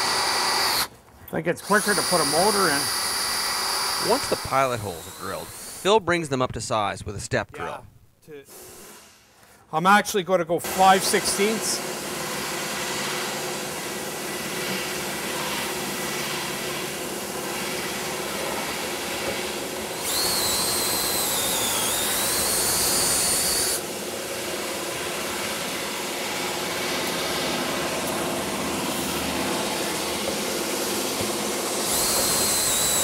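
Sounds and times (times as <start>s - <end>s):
steady shop hum: 0.0s - 9.8s, 10.4s - 33.0s
drill bit squealing on steel: 31.9s - 33.0s.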